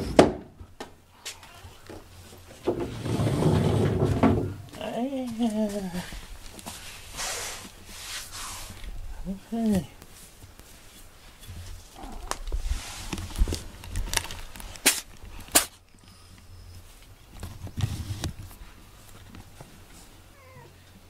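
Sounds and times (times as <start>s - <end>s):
bumping and rustling: 1.7s - 6.8s.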